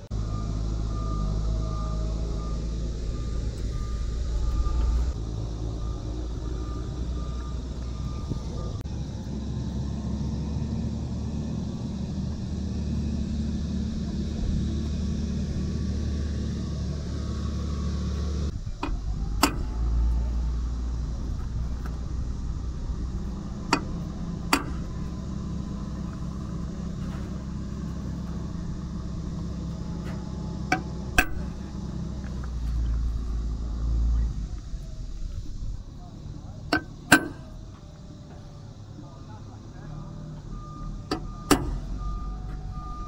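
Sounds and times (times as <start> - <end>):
steady low rumble: 0.0 - 43.0
hammer tapping metal punch: 24.5 - 25.0, 30.7 - 31.6, 36.7 - 37.6, 41.1 - 41.8.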